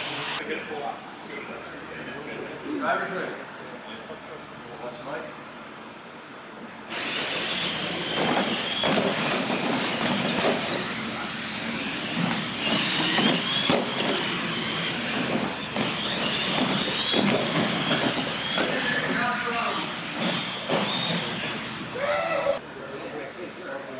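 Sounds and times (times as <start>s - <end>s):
toy truck motors whining: 6.9s - 22.6s
trucks knocking and clattering on ramps: 7.0s - 21.9s.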